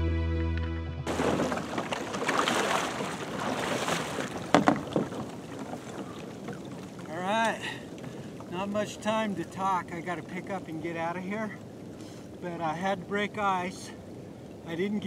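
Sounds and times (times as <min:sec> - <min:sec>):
background music: 0:00.0 - 0:01.1
water sloshing: 0:01.1 - 0:15.0
sharp knocks: 0:04.5 - 0:05.3.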